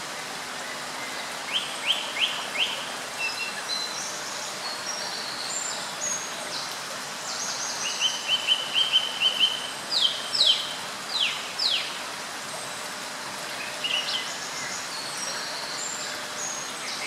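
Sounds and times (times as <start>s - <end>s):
steady background hiss: 0.0s - 17.0s
songbirds singing: 0.3s - 12.7s, 13.3s - 17.0s.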